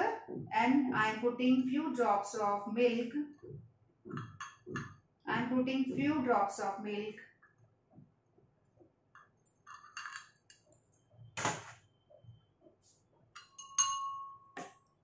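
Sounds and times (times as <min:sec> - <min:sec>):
knock on glassware: 0:04.1 - 0:05.0
glasses clinking: 0:09.6 - 0:10.7, 0:13.4 - 0:14.8
struck glass ringing: 0:13.4 - 0:14.6.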